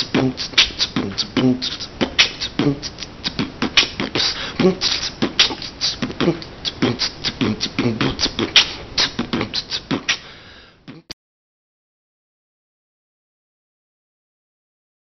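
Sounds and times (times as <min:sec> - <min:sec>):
human beatboxing: 0:00.0 - 0:11.2.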